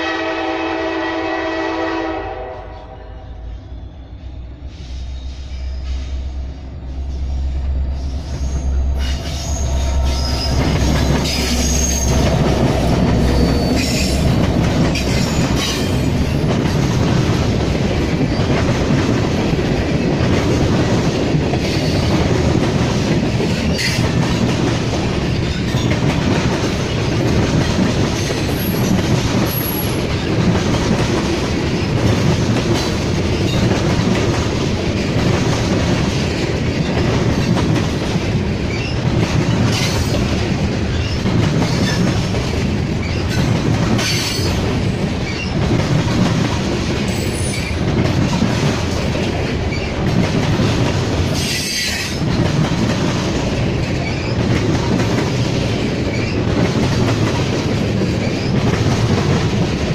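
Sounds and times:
diesel locomotive engine hum: 0.0s - 59.9s
train wheels rumbling on rail: 0.0s - 59.9s
high wheel squeals: 7.2s - 12.2s.

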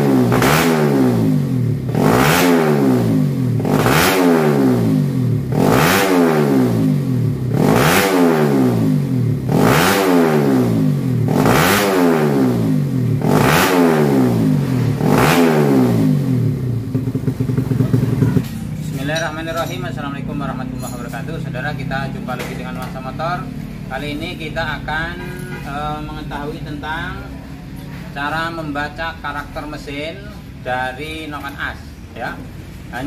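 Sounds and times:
motorcycle engine revving: 0.0s - 23.0s.

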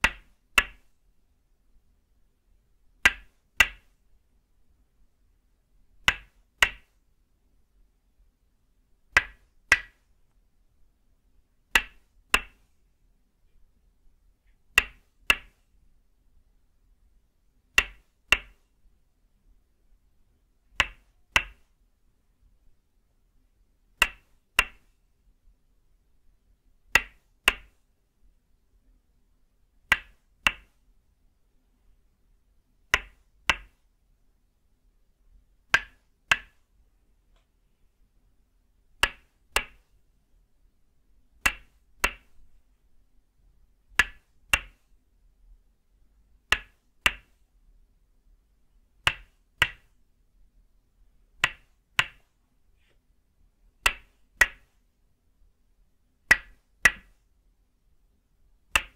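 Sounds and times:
wooden mallet striking wooden peg: 0.0s - 0.9s, 3.0s - 4.0s, 6.0s - 7.0s, 9.1s - 10.1s, 11.7s - 12.7s, 14.7s - 15.6s, 17.8s - 18.6s, 20.7s - 21.7s, 24.0s - 24.9s, 26.9s - 27.8s, 29.9s - 30.7s, 32.9s - 33.8s, 35.7s - 36.6s, 39.0s - 39.9s, 41.4s - 42.5s, 43.9s - 44.8s, 46.5s - 47.4s, 49.0s - 49.9s, 51.4s - 52.2s, 53.8s - 54.7s, 56.3s - 57.2s.

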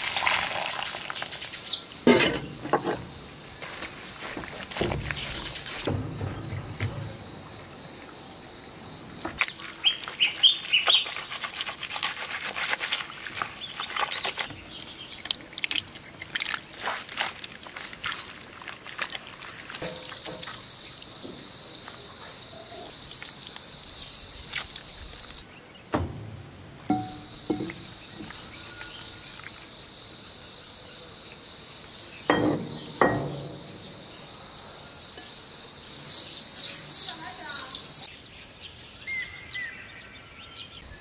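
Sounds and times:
dull thuds: 4.3s - 7.4s, 25.9s - 28.4s
wet clicks and squelches: 9.4s - 21.0s, 21.8s - 25.5s
bird chirps: 26.9s - 29.7s.

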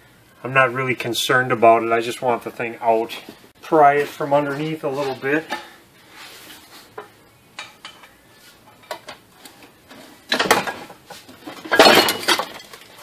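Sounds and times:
light metal taps and scrapes: 6.4s - 10.1s
loud metal clanking: 11.6s - 12.6s.

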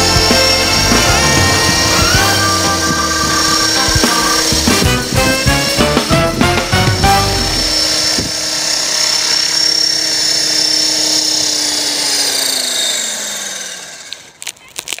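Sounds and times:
rc helicopter motor whining: 0.0s - 15.0s.

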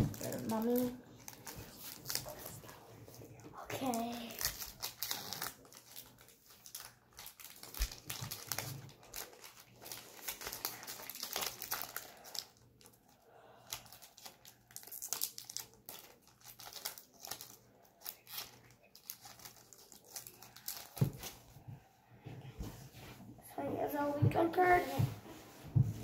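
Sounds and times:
foil wrapper crinkling: 0.0s - 2.6s, 3.7s - 21.6s.

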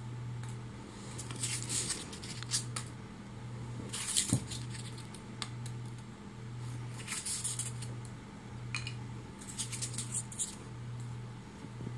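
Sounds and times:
steady low hum: 0.0s - 11.9s
packing peanuts and plastic rustling: 1.1s - 2.8s.

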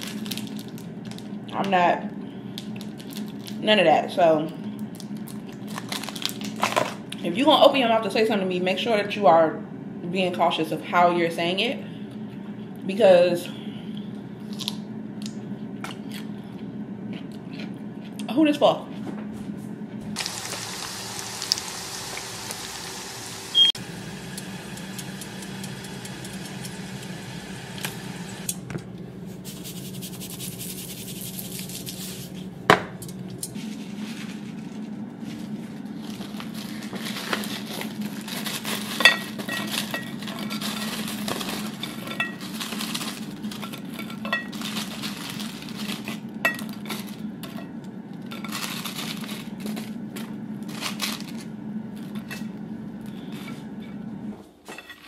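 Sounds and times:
steady low hum: 0.0s - 55.0s
hot oil sizzling: 20.2s - 28.5s.

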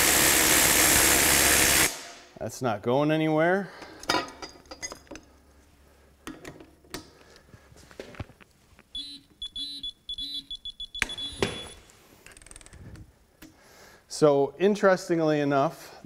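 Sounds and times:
torque wrench beeping: 8.9s - 12.7s.

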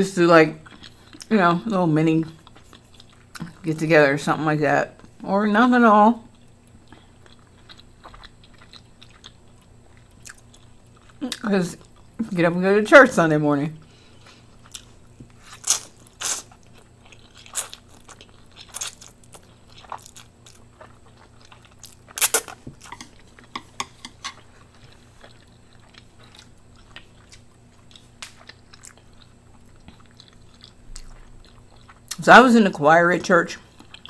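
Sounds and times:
person chewing noodles: 0.6s - 1.3s, 2.3s - 3.6s, 6.3s - 12.2s, 13.9s - 32.2s, 33.7s - 34.0s.

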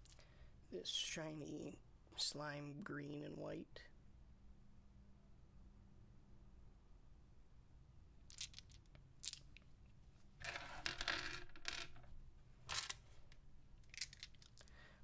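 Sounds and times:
plastic dice clattering on wooden desk: 8.3s - 9.7s, 10.4s - 12.1s, 12.7s - 14.7s.

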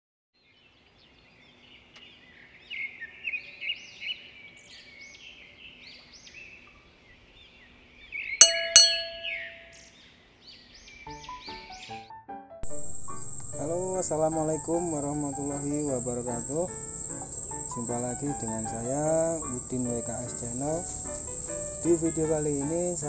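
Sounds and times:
high chirping sweeps: 8.4s - 9.8s, 12.6s - 23.0s
ringing ding: 8.4s - 9.8s, 12.6s - 19.3s.

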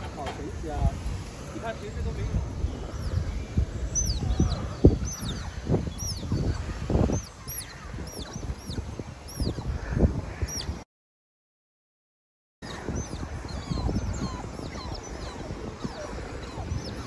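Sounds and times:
wind rumble on microphone: 0.0s - 10.8s, 12.6s - 17.0s
otters squeaking: 12.7s - 17.0s.

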